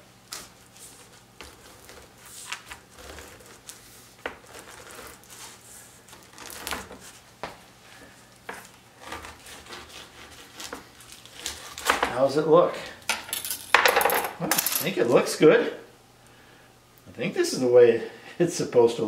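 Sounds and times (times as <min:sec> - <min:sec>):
knife sawing through cured meat: 0:09.0 - 0:11.9.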